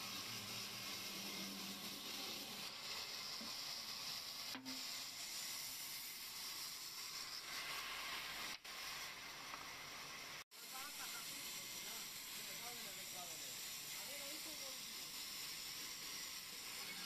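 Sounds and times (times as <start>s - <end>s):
bandsaw running: 0.0s - 8.6s, 9.7s - 17.0s.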